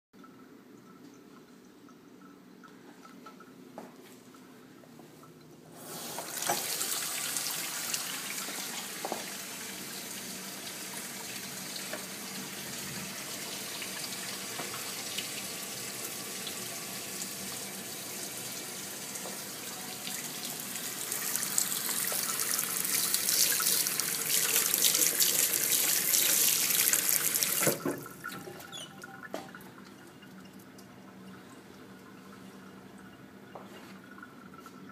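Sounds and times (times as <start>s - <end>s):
water running into steel sink: 5.8s - 32.4s.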